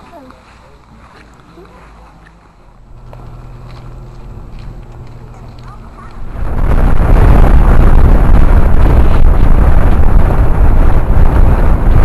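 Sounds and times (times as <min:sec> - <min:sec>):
wind buffeting microphone: 0:01.6 - 0:12.0.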